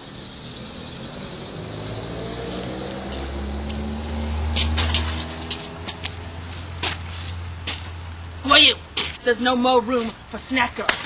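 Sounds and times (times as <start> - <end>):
vehicle engine speeding up: 0.0 - 8.4.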